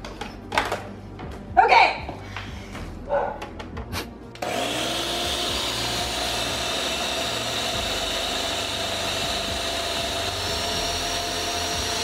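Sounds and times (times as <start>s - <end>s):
blender motor running: 4.4s - 12.0s.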